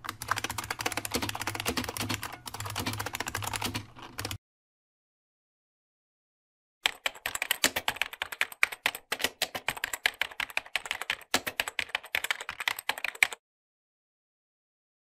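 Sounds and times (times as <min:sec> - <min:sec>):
fast typing on keyboard: 0:00.0 - 0:04.4, 0:06.8 - 0:13.4.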